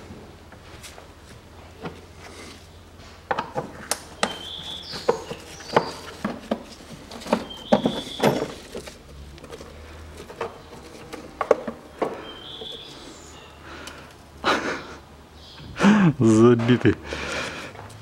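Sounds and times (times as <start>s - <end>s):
plastic squeaks: 4.2s - 13.0s.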